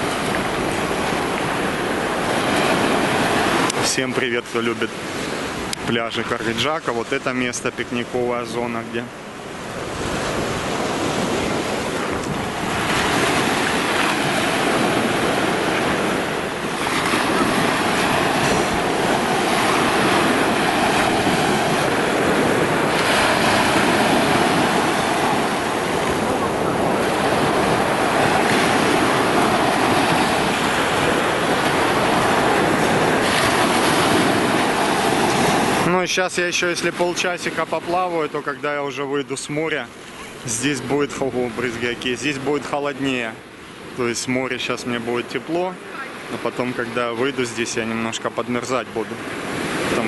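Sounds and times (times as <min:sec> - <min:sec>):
sea waves breaking: 0:00.0 - 0:50.0
wind on microphone: 0:09.3 - 0:35.9.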